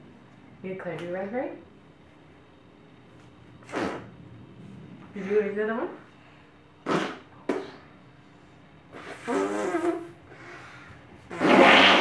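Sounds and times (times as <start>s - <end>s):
children blowing raspberries: 3.6s - 4.1s, 8.9s - 12.0s.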